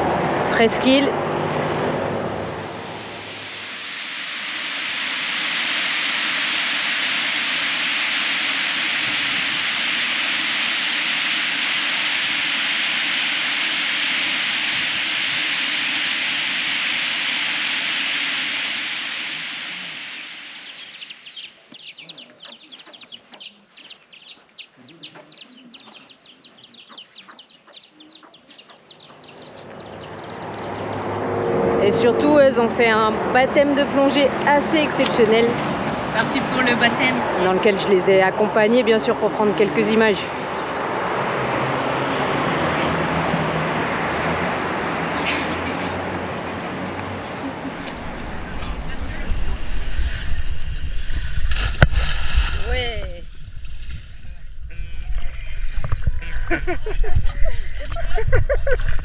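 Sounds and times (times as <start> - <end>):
water rushing: 1.1 - 21.2
birds chirping: 2.4 - 32.8, 52.7 - 59.0.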